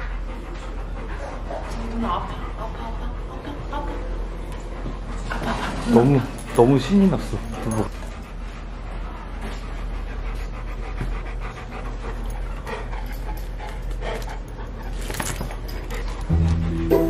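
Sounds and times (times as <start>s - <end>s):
dog panting: 0.0s - 16.9s.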